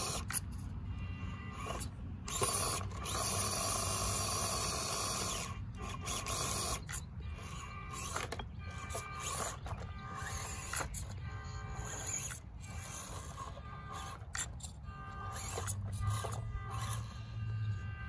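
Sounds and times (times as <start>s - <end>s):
toy car electric motor whining: 0.0s - 18.0s.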